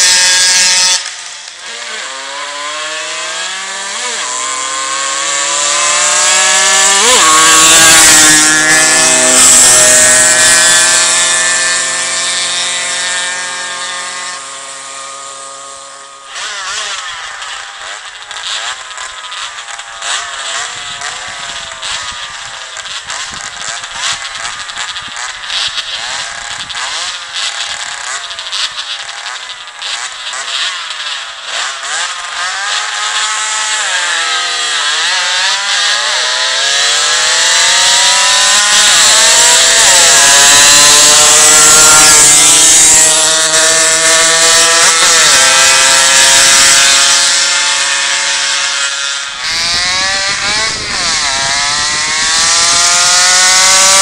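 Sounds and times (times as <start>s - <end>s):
mopeds racing at full throttle: 0.0s - 54.0s.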